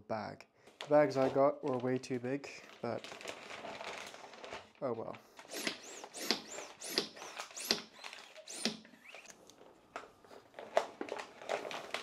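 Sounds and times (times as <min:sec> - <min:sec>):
plastic bag rustling: 0:00.8 - 0:05.5, 0:09.4 - 0:12.0
hand vacuum pump strokes: 0:05.5 - 0:09.3.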